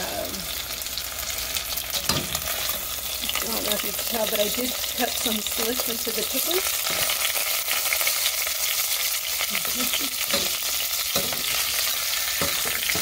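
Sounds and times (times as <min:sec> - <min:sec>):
chicken sizzling in hot oil: 0:00.0 - 0:13.0
metal tongs knocking on pan: 0:10.3 - 0:11.7, 0:12.4 - 0:13.0.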